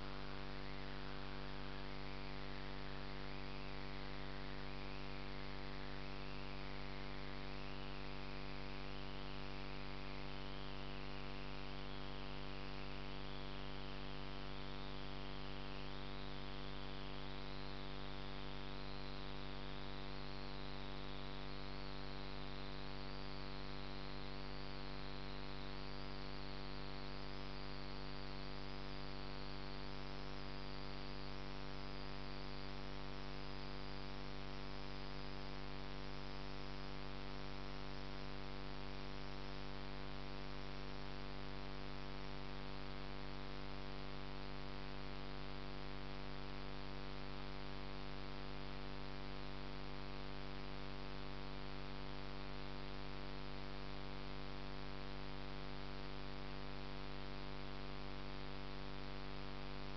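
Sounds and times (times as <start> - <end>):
faint wavering whine: 0.0 - 59.9.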